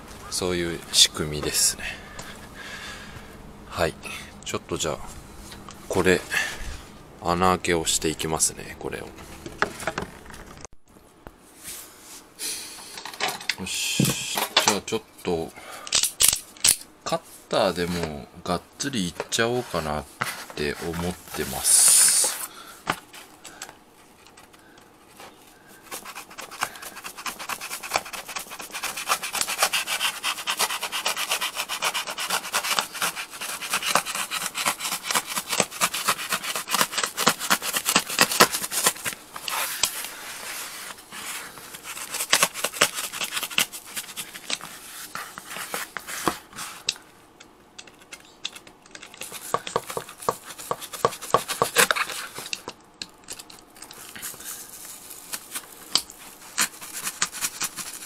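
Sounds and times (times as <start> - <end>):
knife sawing through felt panel: 25.8 - 46.8, 49.2 - 52.4, 56.4 - 58.0.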